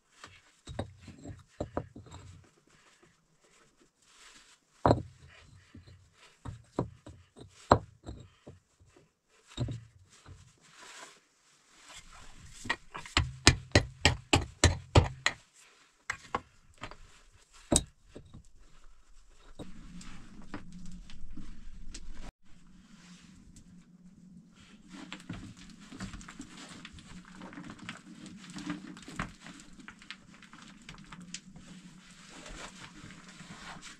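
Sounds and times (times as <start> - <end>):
stones knocking and scraping: 0.6 - 2.4, 4.9 - 5.2, 5.8 - 8.6, 9.6 - 10.4, 12.0 - 15.4, 16.1 - 21.4, 25.1 - 31.6
hammer striking stone: 12.7 - 15.4.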